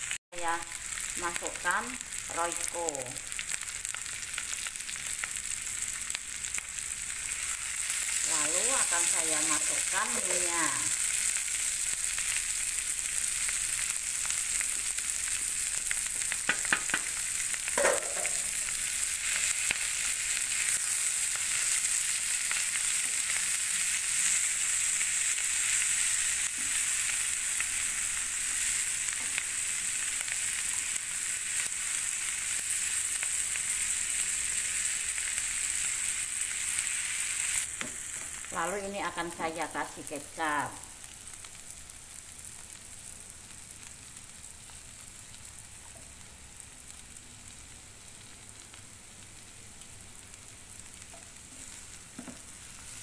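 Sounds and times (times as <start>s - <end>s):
food sizzling in hot oil: 0.0s - 53.0s.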